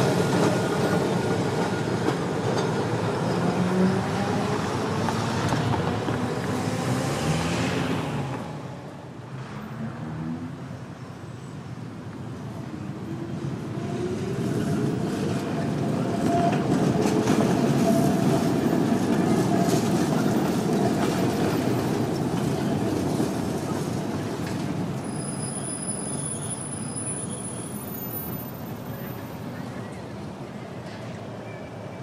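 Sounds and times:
tram wheels rumbling on rails: 0.0 - 9.9, 12.4 - 32.0
high wheel squeal: 25.0 - 29.5.

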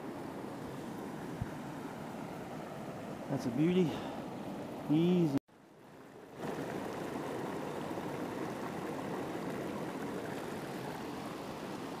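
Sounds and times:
mountain stream flowing: 0.0 - 12.0.

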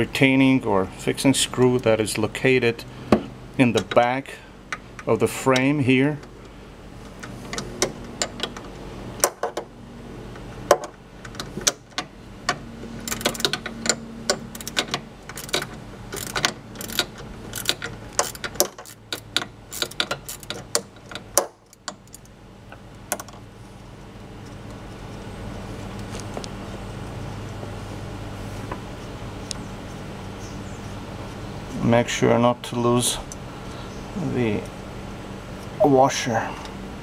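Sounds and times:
ratchet wrench clicking: 13.0 - 22.3.

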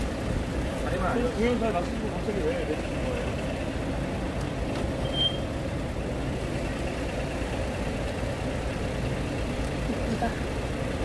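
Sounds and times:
vehicle engines rumbling: 0.0 - 11.0
short high beep: 5.0 - 5.5.

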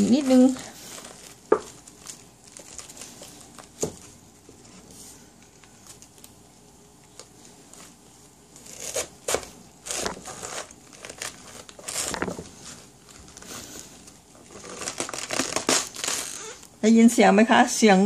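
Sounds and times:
knife cutting crunching cabbage: 0.0 - 4.1, 8.6 - 16.6.

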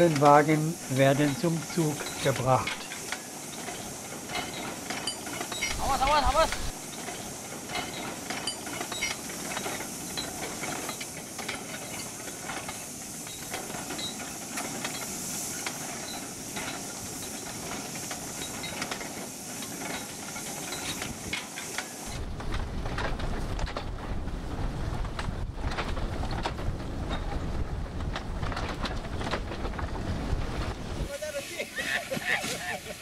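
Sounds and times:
steam locomotive hissing: 0.0 - 33.0
light metal knocks and clanks: 6.9 - 21.9
low wind-like rumble: 22.1 - 31.1.

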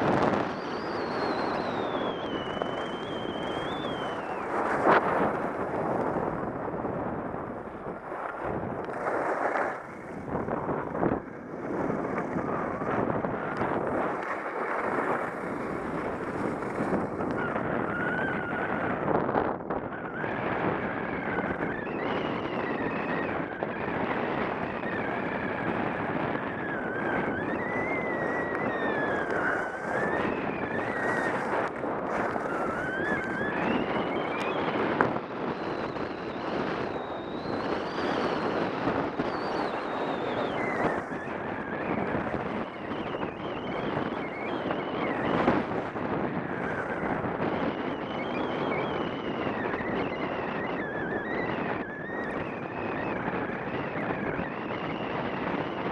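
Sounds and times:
faint wavering whistle: 0.0 - 19.1, 19.8 - 55.9
wind on microphone: 0.0 - 55.9
skis scraping on snow: 2.7 - 6.4, 7.8 - 17.6, 29.1 - 34.2.

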